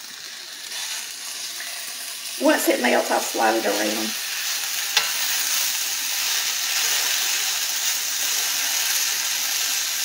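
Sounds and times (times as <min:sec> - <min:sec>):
potatoes sizzling in butter: 0:00.0 - 0:10.0.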